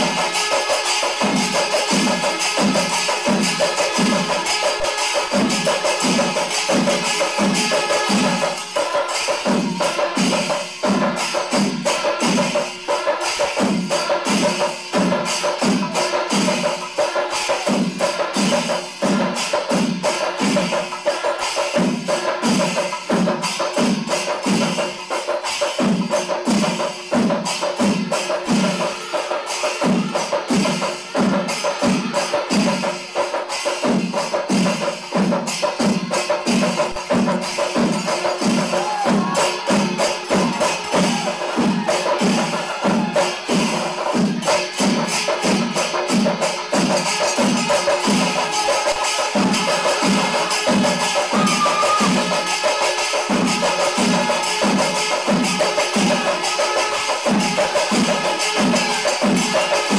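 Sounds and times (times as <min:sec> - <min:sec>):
cymbals clashing: 0:00.0 - 0:59.9
drums beaten in fast roll: 0:00.0 - 0:59.9
steady low drum beat: 0:33.8 - 0:52.6.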